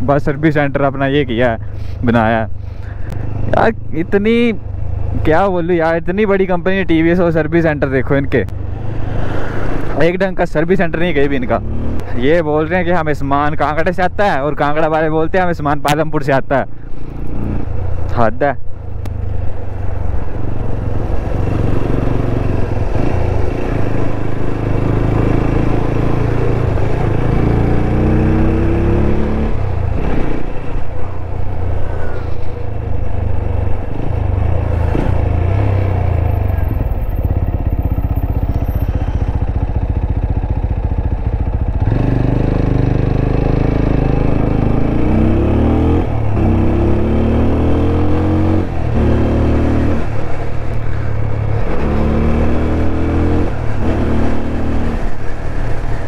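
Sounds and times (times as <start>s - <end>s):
motorcycle engine revving: 11.3s - 12.2s, 19.1s - 56.0s.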